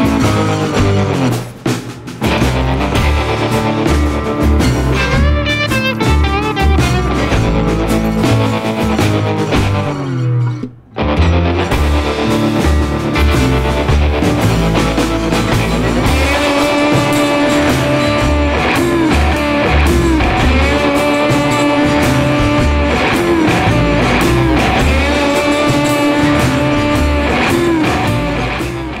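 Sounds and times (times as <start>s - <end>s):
rock music with guitar: 0.0s - 29.0s.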